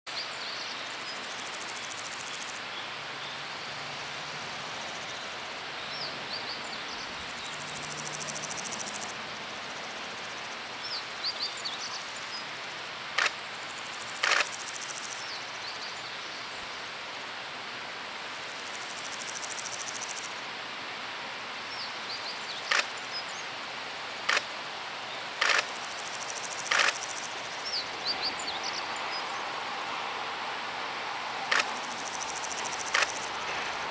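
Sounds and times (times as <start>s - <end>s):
insects trilling: 0.2s - 16.1s, 17.9s - 20.5s, 21.5s - 33.9s
sharp clicks: 13.2s - 13.4s, 14.2s - 14.6s, 22.7s - 22.9s, 24.3s - 24.5s, 25.4s - 27.3s, 31.5s - 33.3s
electric train running: 29.6s - 33.9s.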